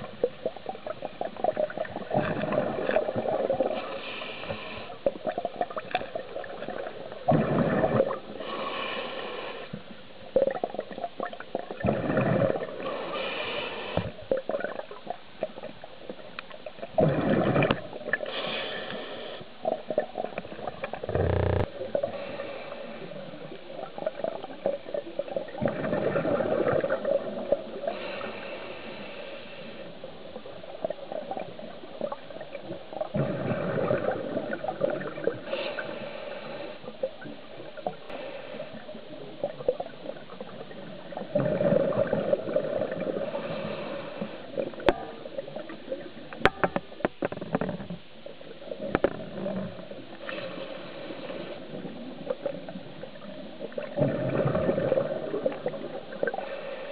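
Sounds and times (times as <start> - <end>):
bubbling regulator exhalations: 6.4 - 8.2, 11.7 - 12.9, 17.0 - 17.9, 19.7 - 21.7, 33.1 - 35.5, 52.8 - 56.4
regulator inhalation hiss: 18.3 - 19.5.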